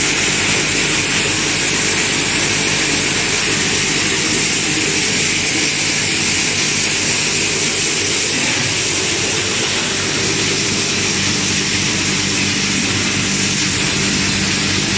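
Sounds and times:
crusher machinery hiss: 0:00.0 - 0:14.9
low machinery hum: 0:00.0 - 0:14.9.

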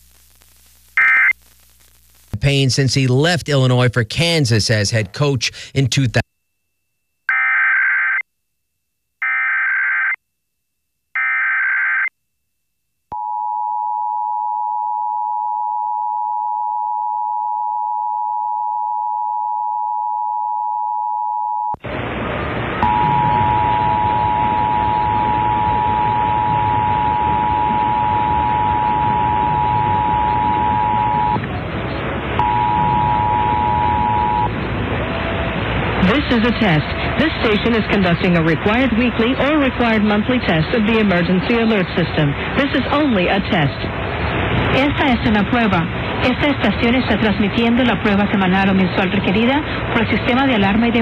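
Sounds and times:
two-tone attention signal: 0:22.8 - 0:31.4, 0:32.4 - 0:34.5.

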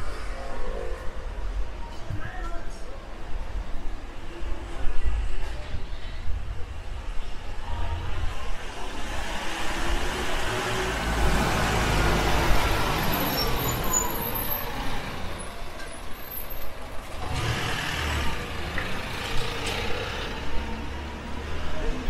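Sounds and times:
minibus engine passing: 0:08.3 - 0:22.0.

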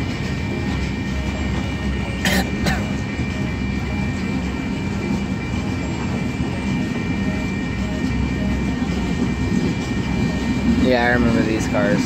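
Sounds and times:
train wheels on rails: 0:00.0 - 0:12.0.

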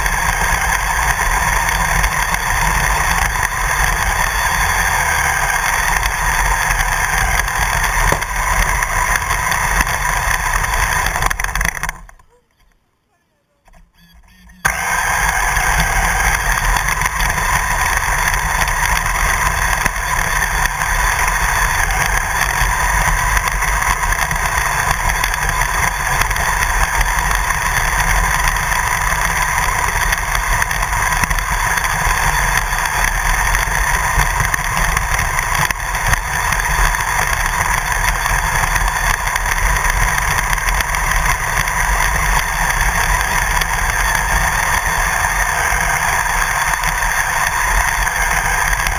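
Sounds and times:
remote control car running: 0:00.0 - 0:12.8, 0:13.6 - 0:48.9.

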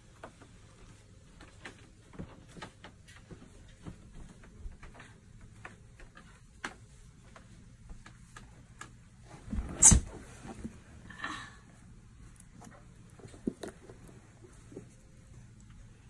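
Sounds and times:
faint small clicks and taps: 0:00.1 - 0:09.0.

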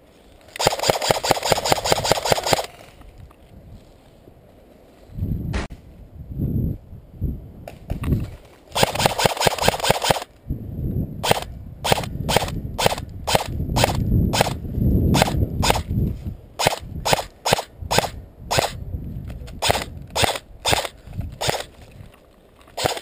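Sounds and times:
airsoft rifle firing: 0:00.6 - 0:02.8, 0:08.7 - 0:10.3, 0:11.2 - 0:14.6, 0:15.2 - 0:15.9, 0:16.6 - 0:18.8, 0:19.6 - 0:21.7, 0:22.8 - 0:23.0.

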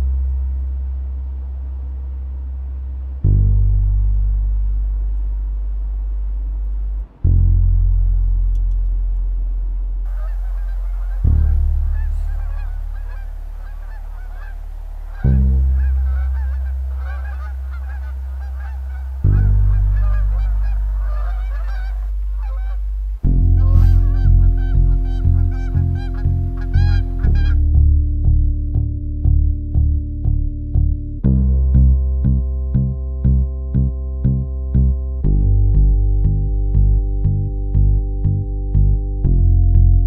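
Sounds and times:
deep bass notes: 0:00.0 - 0:40.0
geese honking: 0:10.1 - 0:27.6
pulsing music rhythm: 0:10.1 - 0:40.0.

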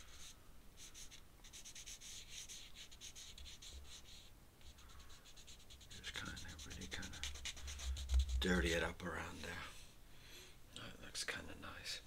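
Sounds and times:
pen scratching on paper: 0:00.0 - 0:08.7.

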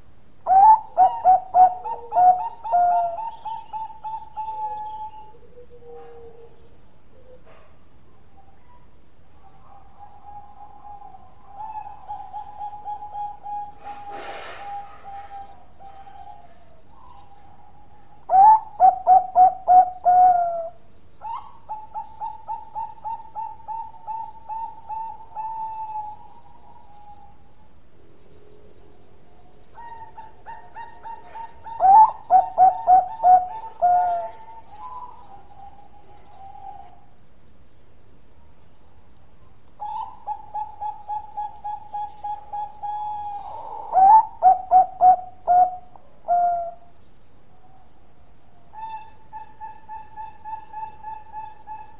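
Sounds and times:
dove cooing: 0:00.4 - 0:08.8, 0:09.4 - 0:27.6, 0:28.2 - 0:37.1, 0:39.8 - 0:46.9, 0:47.6 - 0:51.9.

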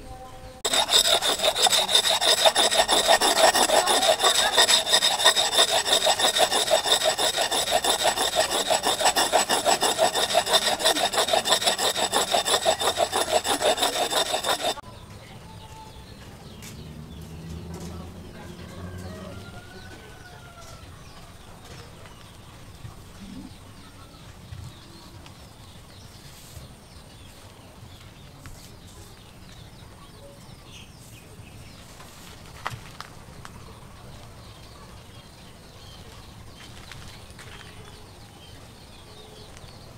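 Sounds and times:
axe sharpened on stone: 0:00.6 - 0:14.8.

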